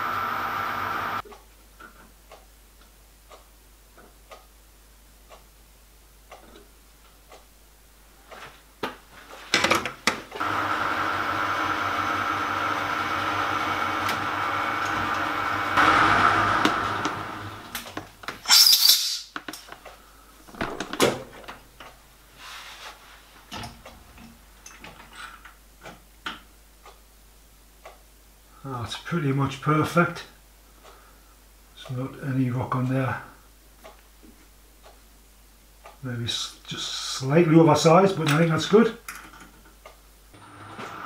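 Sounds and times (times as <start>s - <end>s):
lathe motor humming: 0.0s - 1.2s, 10.4s - 17.8s.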